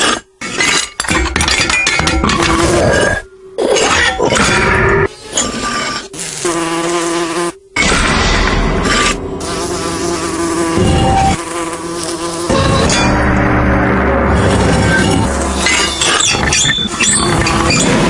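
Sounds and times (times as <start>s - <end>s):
fly wings buzzing: 5.5s - 7.8s, 8.8s - 13.0s.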